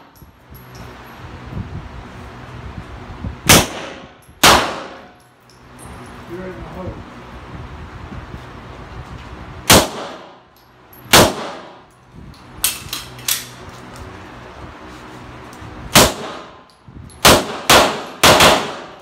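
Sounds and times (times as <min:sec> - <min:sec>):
pistol shots ringing indoors: 0:03.5 - 0:05.2, 0:11.1 - 0:11.8, 0:17.2 - 0:19.0.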